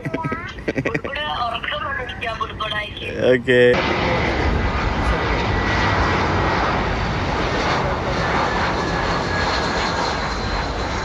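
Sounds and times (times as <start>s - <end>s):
jet engines rushing: 3.7s - 11.0s.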